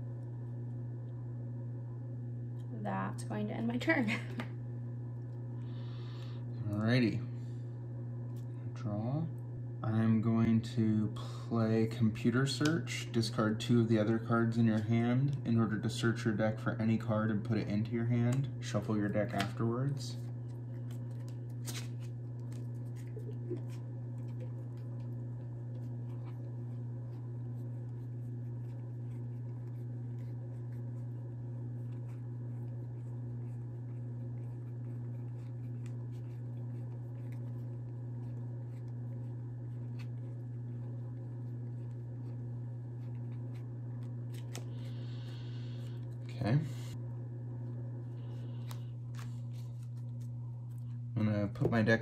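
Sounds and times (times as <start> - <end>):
low hum: 0.0 - 52.0
cards clicking and rustling: 18.2 - 25.1, 43.0 - 44.9, 48.6 - 50.9.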